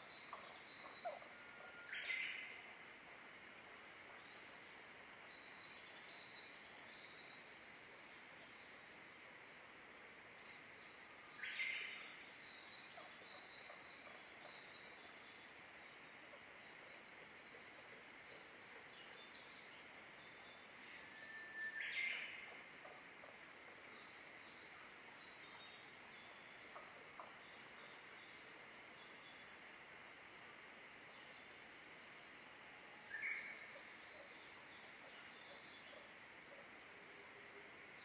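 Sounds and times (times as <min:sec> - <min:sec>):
faint distant birdsong: 0:00.0 - 0:38.0
steady hiss: 0:00.0 - 0:38.0
faint ticks: 0:29.1 - 0:32.3.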